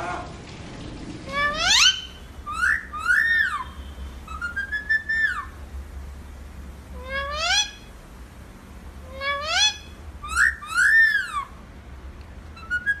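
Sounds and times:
parakeets calling: 1.3 - 5.6, 6.9 - 7.9, 9.1 - 11.5.

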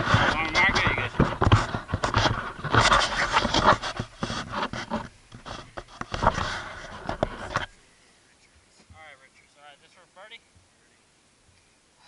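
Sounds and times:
microphone handling scratching: 0.0 - 7.8.

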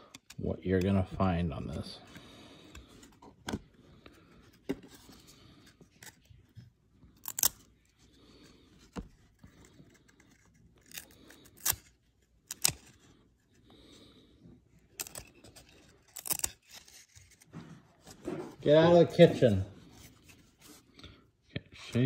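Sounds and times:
cards flicking and snapping: 7.2 - 7.7, 9.7 - 13.0.

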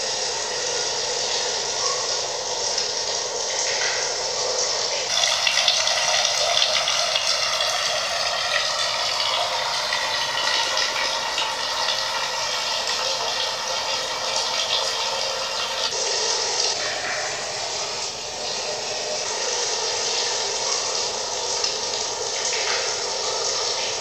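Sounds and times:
water running: 0.0 - 24.0.

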